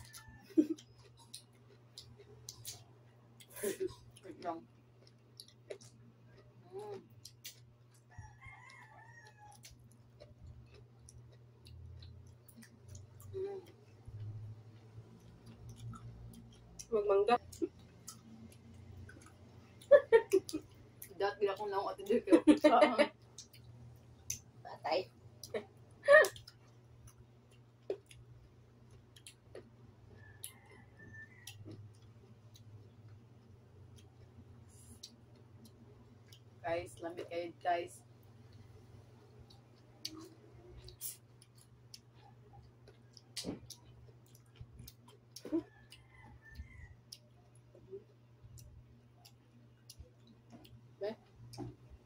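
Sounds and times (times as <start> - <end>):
rooster crowing: 0.0 - 0.6, 8.1 - 9.7, 30.1 - 31.8, 45.6 - 47.2
seaweed clicking and popping while chewed: 0.0 - 4.2, 9.6 - 13.3, 39.3 - 46.0
chewing clicks: 0.0 - 21.1, 23.2 - 24.5, 26.3 - 36.5, 38.2 - 52.0
low steady hum: 0.0 - 52.0.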